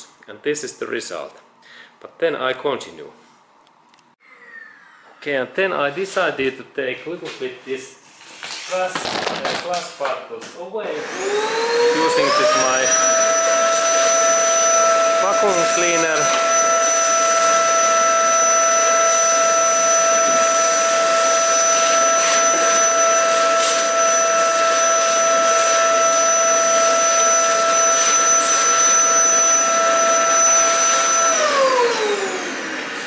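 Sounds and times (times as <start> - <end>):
vacuum cleaner whining: 10.8 - 33.0
vacuum motor spinning down: 11.0 - 33.0.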